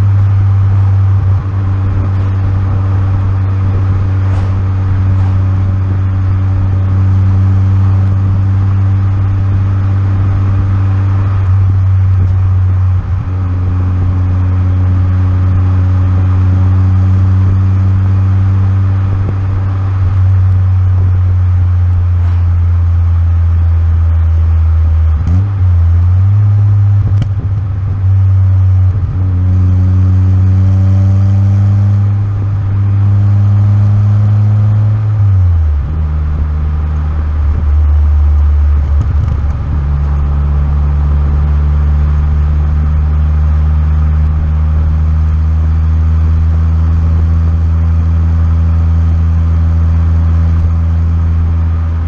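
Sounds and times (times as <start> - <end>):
car exhaust droning: 0.0 - 52.0.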